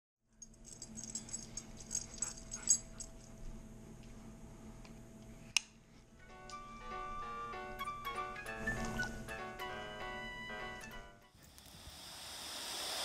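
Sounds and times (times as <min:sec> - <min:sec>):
dog whining and fussing: 0:01.8 - 0:03.2
upbeat background music: 0:06.3 - 0:11.3.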